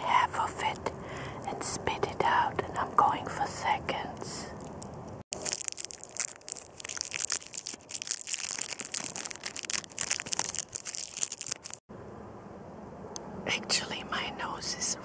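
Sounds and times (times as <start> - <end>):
plastic candy wrapper crinkling: 4.5 - 11.8.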